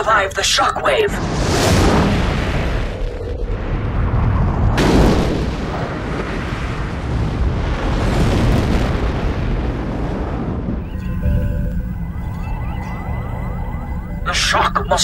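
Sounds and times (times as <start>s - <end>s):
explosive blast: 1.2s - 11.2s.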